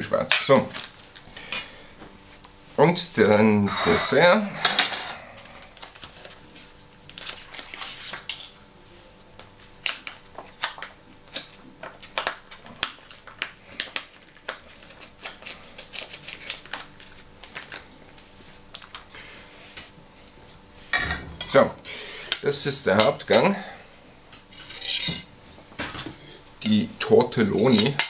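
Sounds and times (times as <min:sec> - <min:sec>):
foil pouch crinkling: 0:05.5 - 0:08.3, 0:09.8 - 0:19.1.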